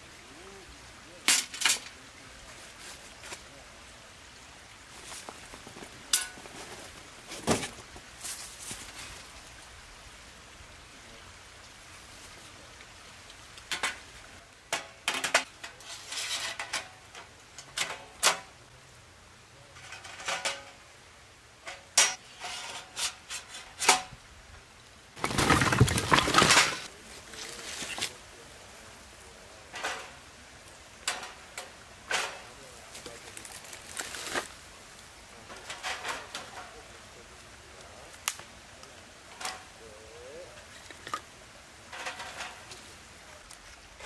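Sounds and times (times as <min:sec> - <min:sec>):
metal panels clinking and knocking: 0:14.7 - 0:18.5, 0:19.8 - 0:20.8, 0:25.2 - 0:26.9, 0:41.9 - 0:42.7
rustling scraping burst: 0:25.2 - 0:26.9.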